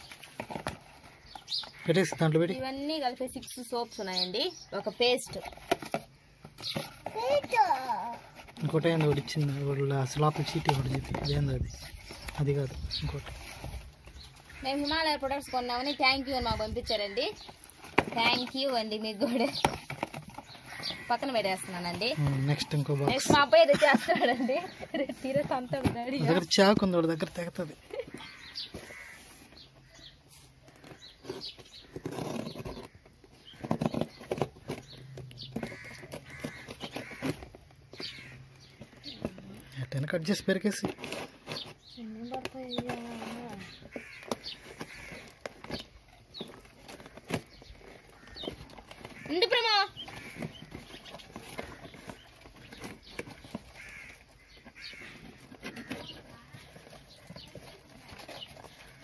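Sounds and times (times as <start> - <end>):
birds calling: 0.0 - 59.0
cardboard parcel being torn open: 30.6 - 59.0.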